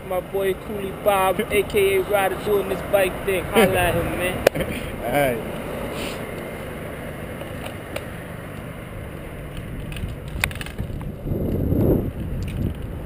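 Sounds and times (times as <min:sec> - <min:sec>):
wind buffeting microphone: 0:09.0 - 0:13.0
bike clicks: 0:09.5 - 0:13.0.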